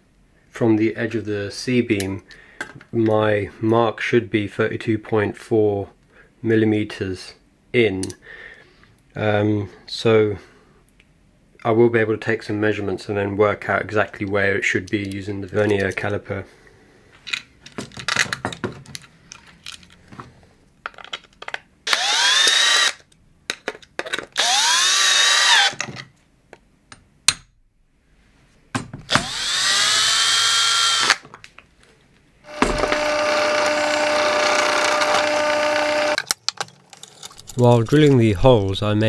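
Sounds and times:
drill motor whirring: 0:21.9 - 0:23.0, 0:24.4 - 0:25.8, 0:29.1 - 0:31.2, 0:32.5 - 0:36.2
pillar drill boring: 0:21.9 - 0:23.0, 0:24.4 - 0:25.8, 0:29.1 - 0:31.2, 0:32.5 - 0:36.2.

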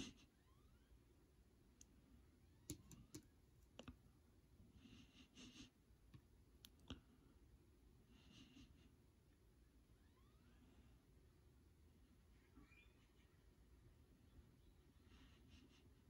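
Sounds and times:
cardboard counters clicking and tapping: 0:02.7 - 0:03.3.

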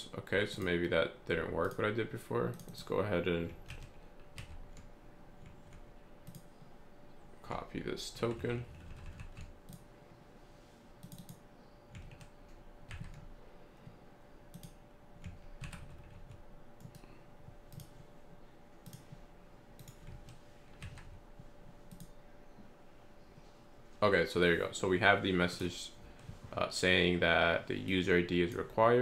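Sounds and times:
keyboard keys clicking: 0:08.2 - 0:09.8.

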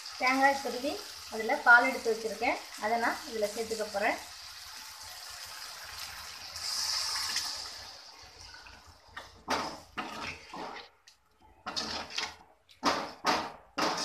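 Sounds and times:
liquid hissing in hot pan: 0:00.0 - 0:08.4
metal skimmer scraping pan: 0:09.6 - 0:11.0, 0:11.6 - 0:12.4.

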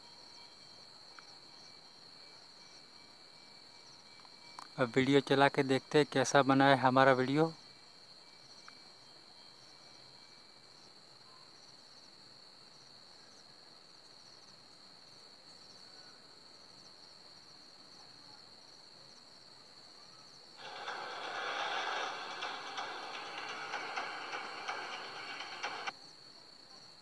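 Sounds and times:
faint crickets chirping: 0:00.0 - 0:27.0.

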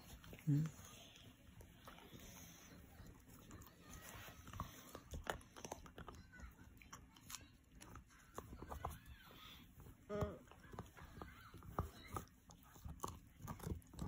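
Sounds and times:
dog gnawing a chew bone: 0:00.0 - 0:14.0.

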